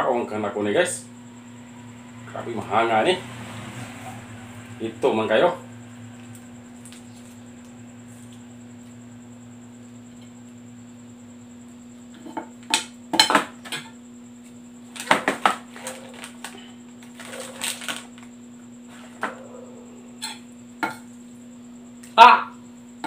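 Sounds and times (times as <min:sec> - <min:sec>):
plastic sachet crinkling: 0:15.7 - 0:18.3.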